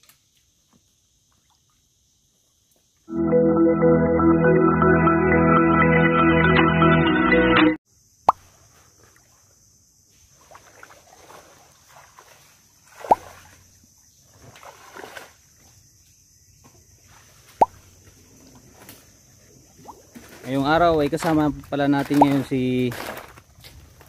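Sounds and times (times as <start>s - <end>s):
water sloshing as someone wades: 10.3s - 13.7s, 14.3s - 15.5s
sharp plops in water: 10.5s - 13.6s.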